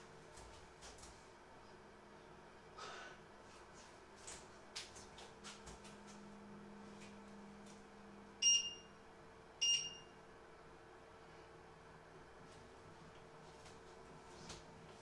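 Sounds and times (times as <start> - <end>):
short electronic beeps: 8.4 - 8.9, 9.6 - 10.1.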